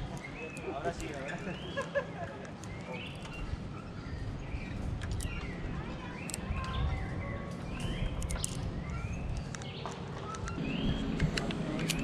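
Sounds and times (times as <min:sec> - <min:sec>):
birds whistling and chirping: 0:00.0 - 0:12.0
sharp clicks: 0:05.0 - 0:05.5, 0:06.2 - 0:06.8, 0:07.6 - 0:12.0
low rumble: 0:10.4 - 0:12.0.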